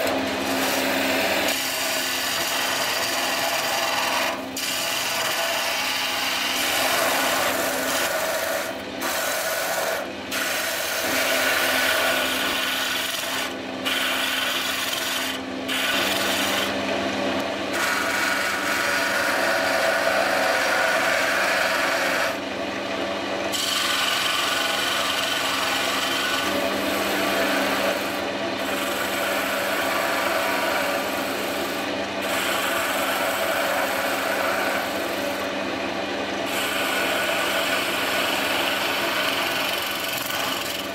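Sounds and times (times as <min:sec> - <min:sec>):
turning tool scraping wood: 0:00.0 - 0:22.4, 0:23.5 - 0:35.6, 0:36.4 - 0:40.9
wood lathe humming: 0:00.0 - 0:40.9.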